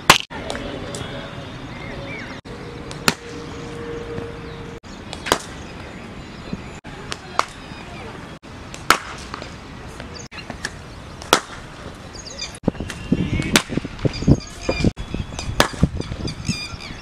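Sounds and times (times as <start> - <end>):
birds chirping: 0.5 - 8.4, 9.2 - 17.0
cricket bat striking ball: 8.8 - 9.5.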